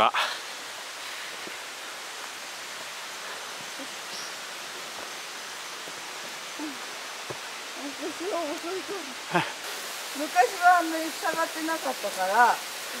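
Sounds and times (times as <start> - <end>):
flowing water rushing: 0.0 - 13.0
person murmuring: 6.6 - 6.8.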